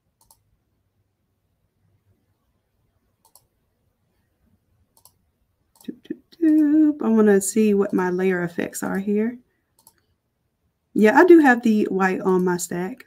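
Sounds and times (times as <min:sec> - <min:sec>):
computer mouse clicks: 0:00.2 - 0:00.5, 0:03.2 - 0:03.5, 0:04.9 - 0:06.8, 0:09.7 - 0:10.2.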